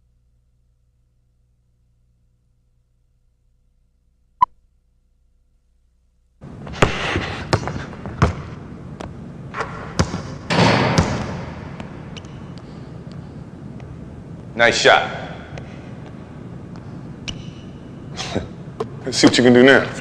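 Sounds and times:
basketball bouncing on hardwood: 6.8s - 9.1s, 9.9s - 12.0s.

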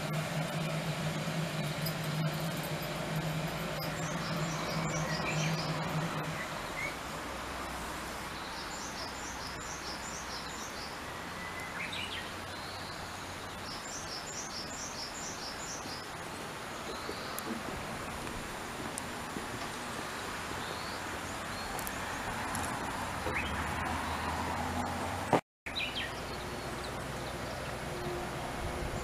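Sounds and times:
low steady hum: 0.0s - 10.2s
steady background noise: 0.0s - 29.0s
small bird singing: 1.6s - 7.0s, 8.3s - 16.1s, 25.7s - 28.1s.

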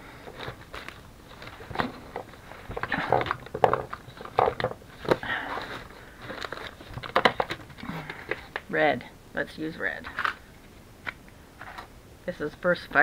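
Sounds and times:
paper and plastic crinkling: 0.2s - 8.7s.

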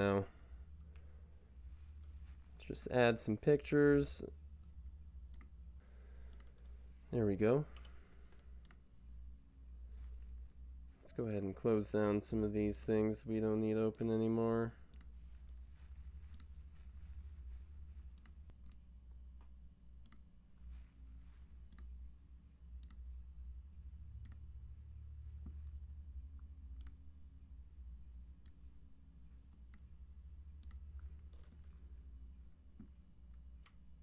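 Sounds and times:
low steady hum: 0.0s - 34.0s
computer mouse clicks: 5.3s - 5.6s, 6.3s - 6.8s, 7.7s - 8.8s, 14.9s - 15.6s, 16.3s - 16.5s, 18.1s - 18.8s, 20.0s - 20.3s, 21.7s - 22.0s, 22.8s - 23.0s, 26.8s - 27.0s, 30.6s - 31.7s.

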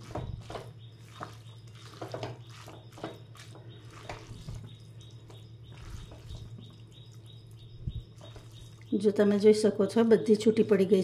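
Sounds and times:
spatulas tapping and scraping wok: 0.0s - 6.7s
wet squishy noodles: 0.0s - 9.0s
steady low hum: 0.0s - 11.0s.

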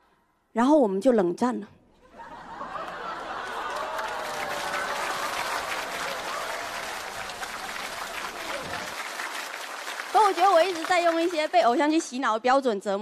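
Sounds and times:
laughter: 2.0s - 4.8s
audience applauding: 2.2s - 12.1s.

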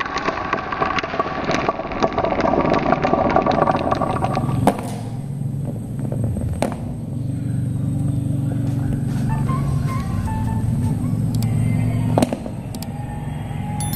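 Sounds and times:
marbles rolling down wooden run: 0.0s - 4.7s.

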